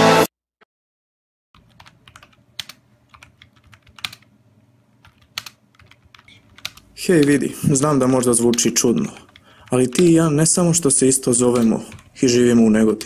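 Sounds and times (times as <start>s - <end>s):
music: 0.0s - 0.3s.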